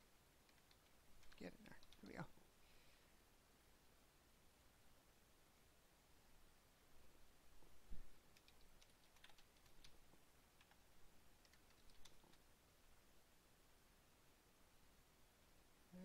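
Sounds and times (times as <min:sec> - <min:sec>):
typing on computer keyboard: 0:00.5 - 0:02.1, 0:08.3 - 0:10.8, 0:11.4 - 0:12.4.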